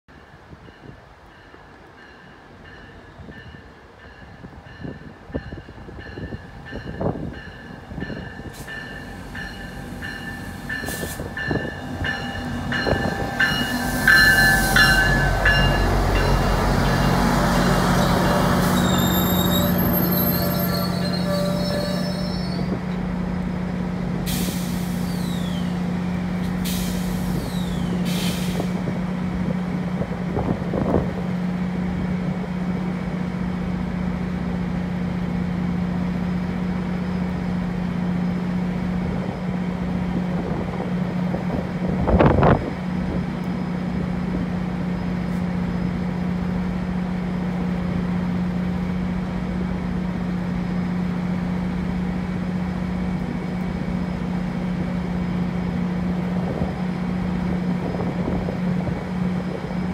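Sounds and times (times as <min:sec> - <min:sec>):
train low hum: 0:00.0 - 0:59.9
short air blasts: 0:24.3 - 0:25.5, 0:26.6 - 0:28.8
brake air hissing: 0:26.5 - 0:28.8.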